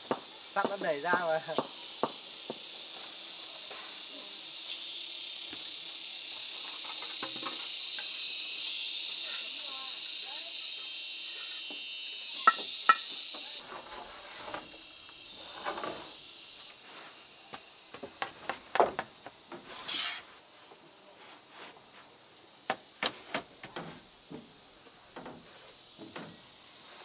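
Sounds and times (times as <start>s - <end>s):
steady high hiss: 0.0s - 27.0s.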